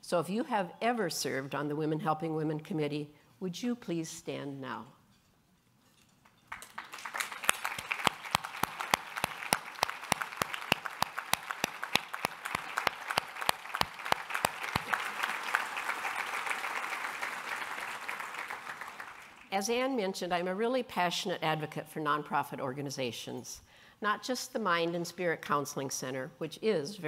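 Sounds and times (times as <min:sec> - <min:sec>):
audience applauding: 0:06.5 - 0:19.5
sharp close hand claps: 0:06.5 - 0:19.5.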